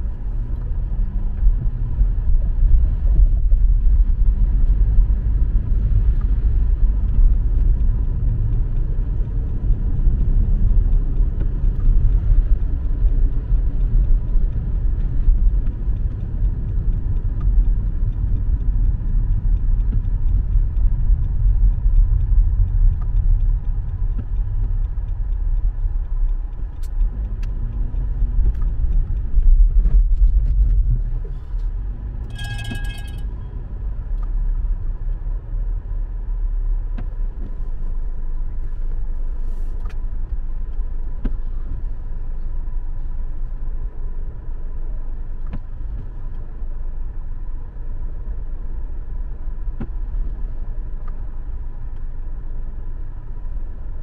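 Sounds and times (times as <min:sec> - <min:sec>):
car engine and tyre rumble: 0:00.0 - 0:54.0
short electronic tone: 0:32.3 - 0:33.3.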